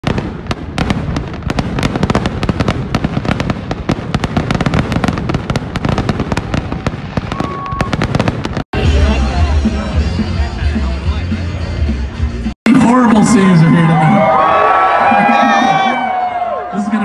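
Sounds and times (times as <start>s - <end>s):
fireworks bangs and crackles: 0.0s - 11.2s.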